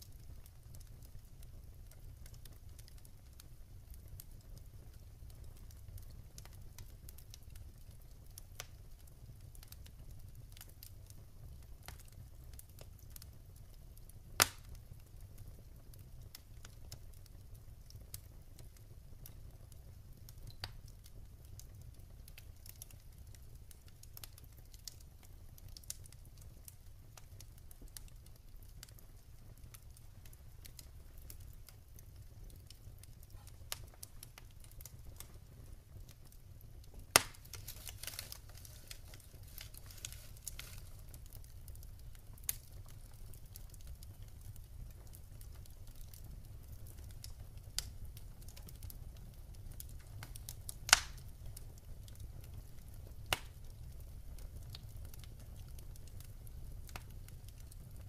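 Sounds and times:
wood fire crackling: 0.0s - 58.0s
sharp fire pops: 14.3s - 14.8s, 29.6s - 46.2s, 49.8s - 53.8s.

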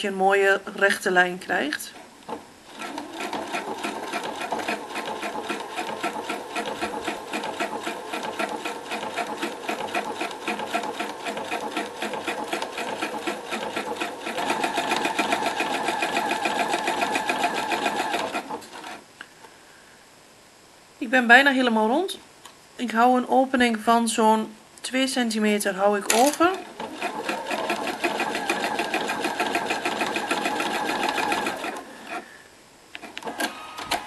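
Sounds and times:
sewing machine stitching: 2.3s - 19.0s, 26.1s - 32.2s.

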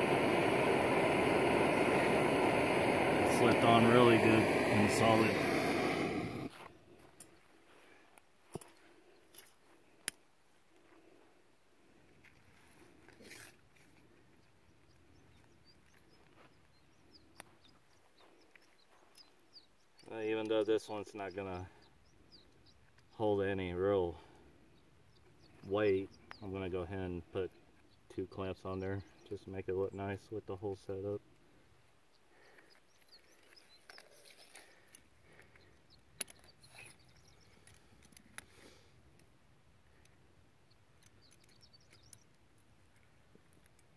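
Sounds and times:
faint bird chirps: 14.2s - 38.8s, 39.9s - 42.4s.

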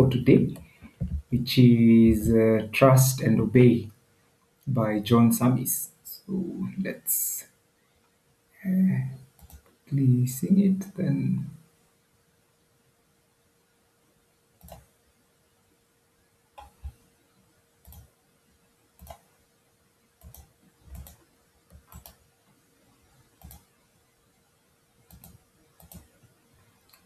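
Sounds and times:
faint steady hum: 0.0s - 27.0s
computer mouse clicking: 9.3s - 9.8s, 14.6s - 14.9s, 16.6s - 17.0s, 17.8s - 18.1s, 19.0s - 19.3s, 20.2s - 22.2s, 23.1s - 23.7s, 25.0s - 27.0s.

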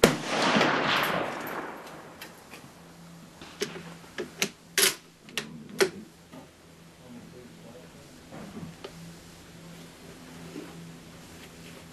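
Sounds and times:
rifle shot echoing: 0.0s - 4.0s.

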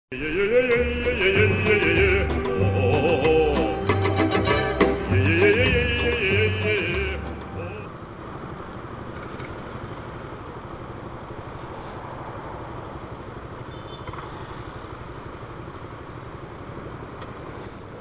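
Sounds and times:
passing traffic: 0.1s - 18.0s
motorcycle engines idling: 0.2s - 18.0s.

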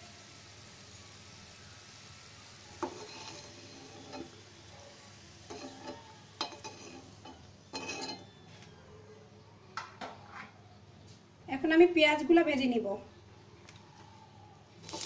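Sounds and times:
oil sizzling: 0.0s - 8.3s, 14.7s - 15.0s
utensil scraping and knocking pan: 2.8s - 4.4s, 5.5s - 8.3s.

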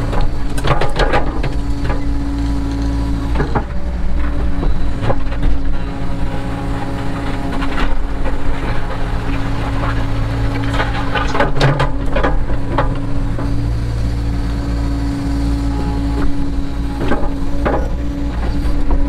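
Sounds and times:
bucket and logs clattering: 0.0s - 14.9s
diesel engine running: 0.0s - 19.0s.

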